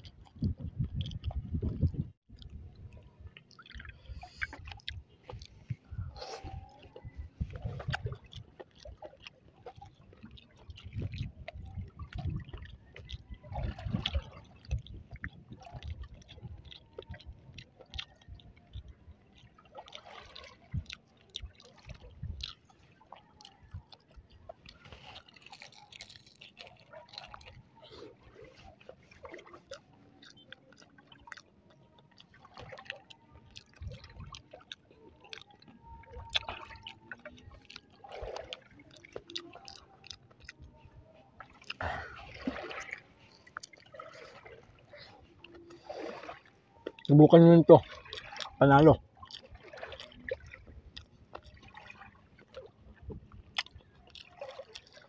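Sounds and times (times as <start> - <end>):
wet chewing: 0.0 - 55.0
crispy crust crackles: 24.7 - 27.7.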